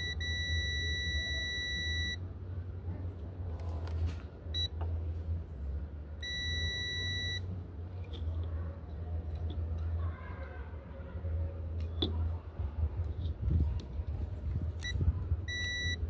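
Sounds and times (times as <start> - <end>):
multimeter continuity beeping: 0.0 - 2.2, 6.2 - 7.4, 14.8 - 16.0.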